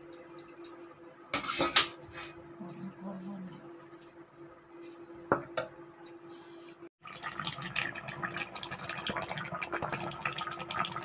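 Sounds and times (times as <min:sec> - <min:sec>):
curry boiling and bubbling: 0:07.0 - 0:11.0.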